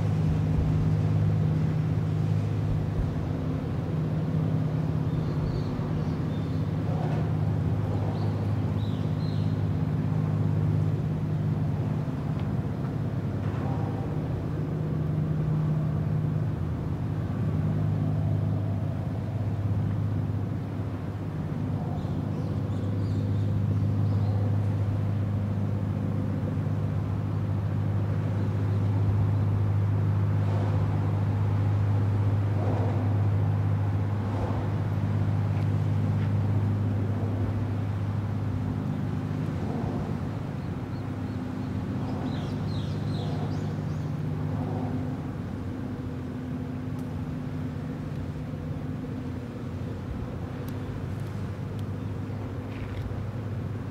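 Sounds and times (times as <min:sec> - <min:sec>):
ship engine deep drone: 0:00.0 - 0:53.9.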